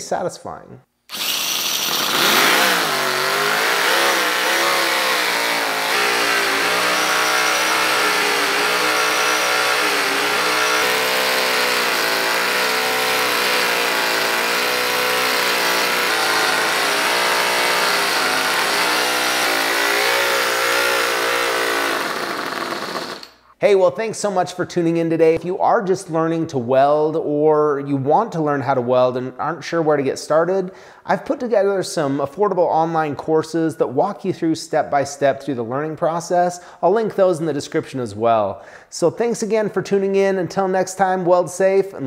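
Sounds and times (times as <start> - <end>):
model engine running: 1.1 - 23.3.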